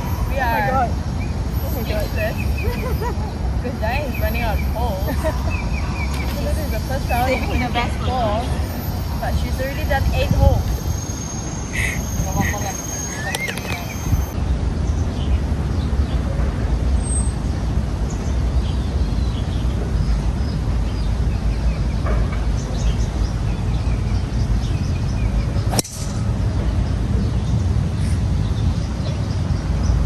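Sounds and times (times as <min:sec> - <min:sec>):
golf ball struck by driver: 0:25.7 - 0:26.3.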